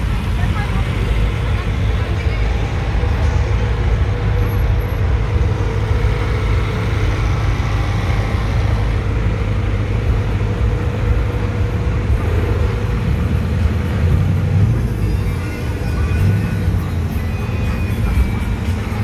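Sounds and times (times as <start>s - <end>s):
street traffic rumble: 0.0s - 19.0s.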